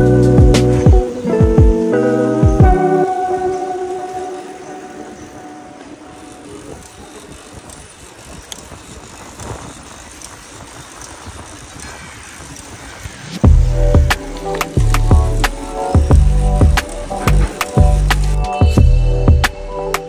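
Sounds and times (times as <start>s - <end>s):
background music: 0.0s - 6.4s, 13.4s - 20.0s
faint clicks: 5.2s - 13.4s
wind on microphone: 6.2s - 14.2s.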